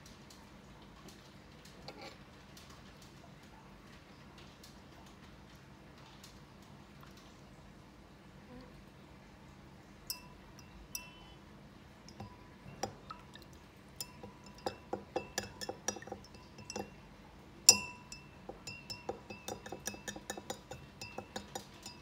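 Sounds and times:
glass container clinking: 0:10.1 - 0:11.4, 0:12.1 - 0:17.1, 0:17.7 - 0:22.0.

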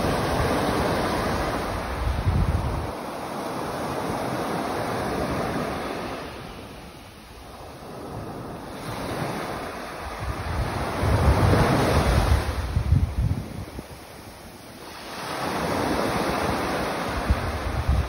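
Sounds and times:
wind rumble on microphone: 0:00.0 - 0:03.1, 0:07.4 - 0:14.2, 0:15.5 - 0:18.0
small waves breaking on sand: 0:00.0 - 0:18.0.

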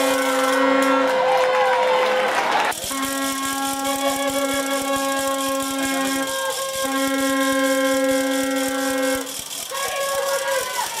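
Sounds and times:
horn blasts: 0:00.0 - 0:11.0
fast clicking rattle: 0:02.7 - 0:11.0.

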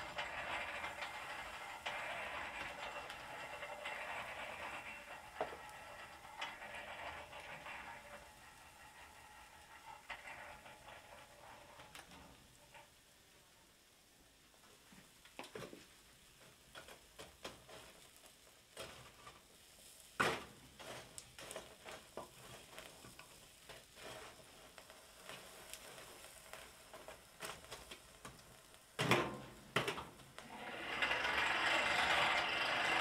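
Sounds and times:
metal rod poking coals: 0:00.0 - 0:12.9, 0:20.3 - 0:28.5
wood fire crackling: 0:00.0 - 0:33.0.

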